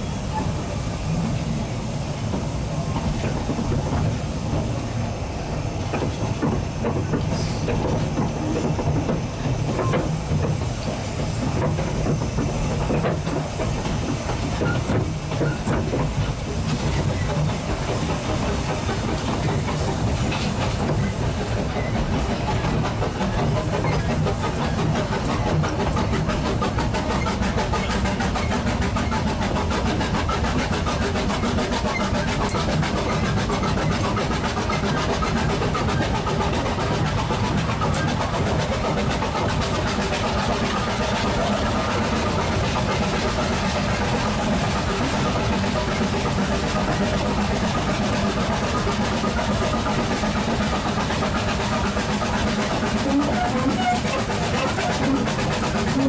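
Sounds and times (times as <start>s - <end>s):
steam hissing: 0.0s - 56.0s
train wheels rumbling on rail: 0.0s - 56.0s.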